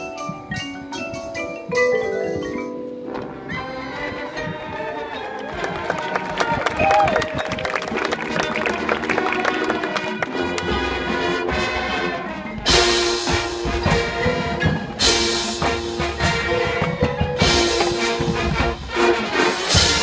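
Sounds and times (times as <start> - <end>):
drums: 0.0 - 4.8, 10.3 - 20.0
marching band playing: 0.0 - 20.0.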